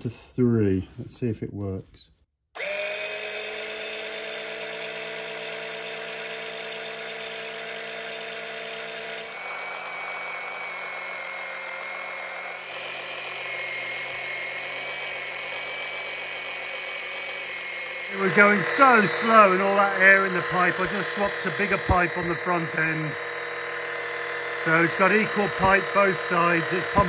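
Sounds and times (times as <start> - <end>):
electric pump whining: 2.6 - 27.0.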